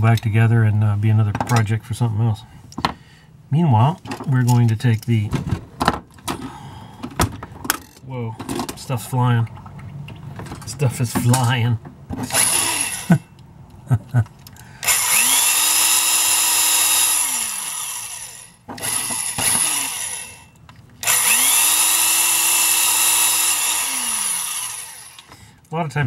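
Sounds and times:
electric drill whining: 12.2s - 13.2s, 14.8s - 25.4s.

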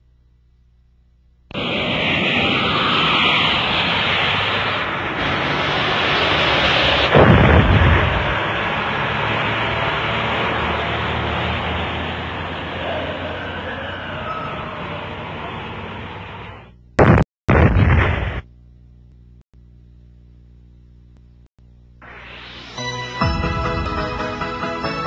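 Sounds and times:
loud rushing rumbling noise: 1.6s - 16.6s
deep boom: 7.0s - 8.5s, 17.0s - 18.4s.

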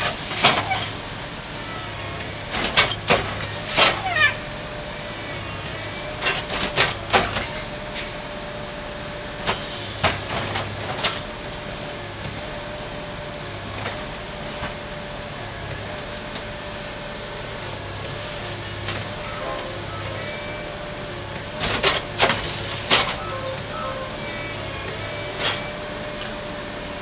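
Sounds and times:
engine running: 0.0s - 27.0s
steady whine: 0.0s - 27.0s
sharp metallic clanks and bangs: 2.5s - 4.4s.

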